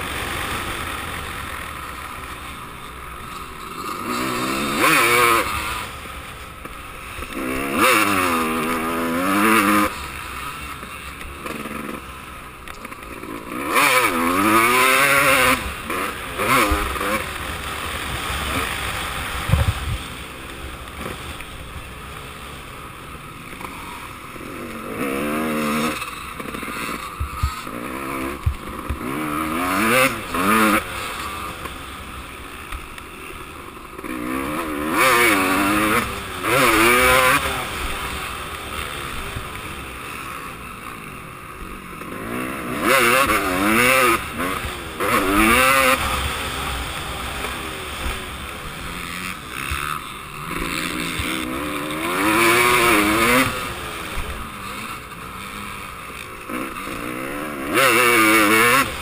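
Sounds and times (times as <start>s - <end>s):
motocross bike engine revving: 0.0s - 59.0s
wind noise on microphone: 19.4s - 20.1s.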